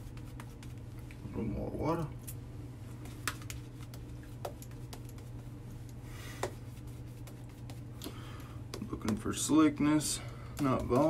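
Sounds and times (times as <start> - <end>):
brush swishing: 0.0 - 1.1, 2.9 - 8.0, 8.7 - 11.0
steady low hum: 0.0 - 11.0.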